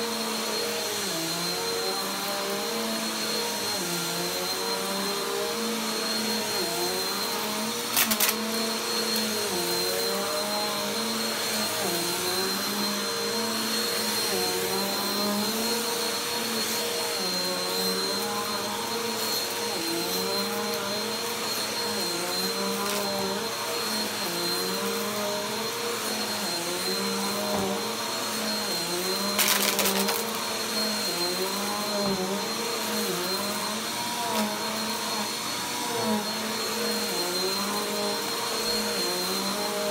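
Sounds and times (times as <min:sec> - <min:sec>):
vacuum cleaner running on carpet: 0:00.0 - 0:39.9
debris crackling up vacuum nozzle: 0:07.9 - 0:08.5, 0:29.3 - 0:30.4.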